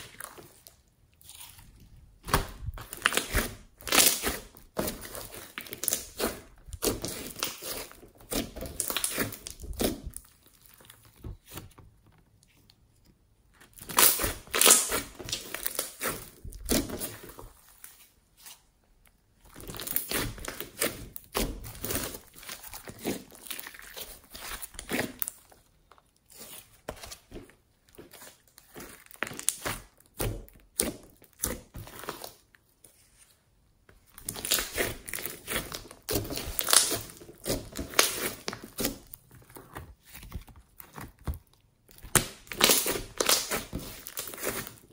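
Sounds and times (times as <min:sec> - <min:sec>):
slime squelching and crackling: 0:00.0 - 0:44.9.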